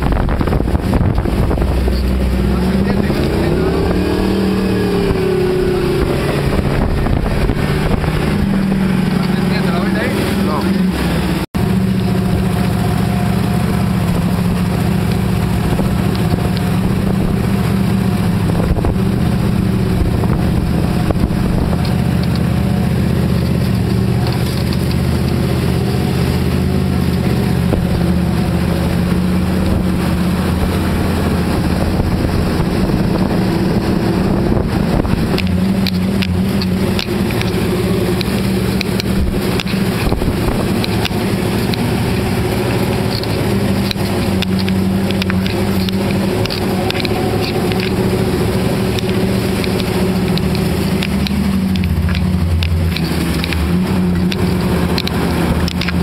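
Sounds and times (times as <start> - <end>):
car engine running at low revs: 0.0 - 56.0.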